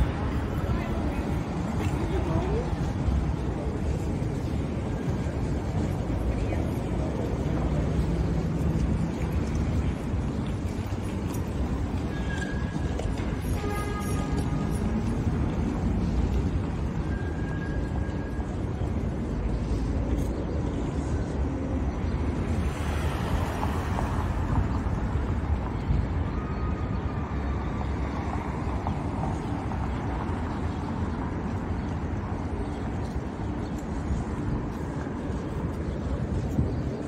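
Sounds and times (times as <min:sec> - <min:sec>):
low rumble of traffic: 0:00.0 - 0:37.0.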